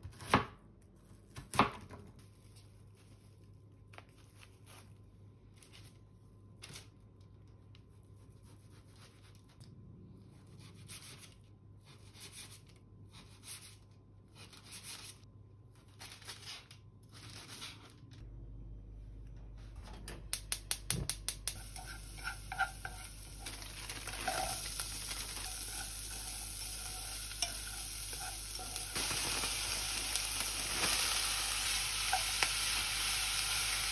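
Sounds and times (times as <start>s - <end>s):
paper crinkling: 23.3s - 27.0s.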